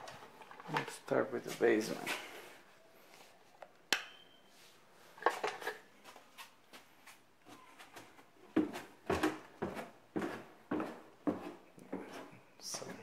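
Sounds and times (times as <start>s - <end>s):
footsteps going down stairs: 6.0s - 13.0s.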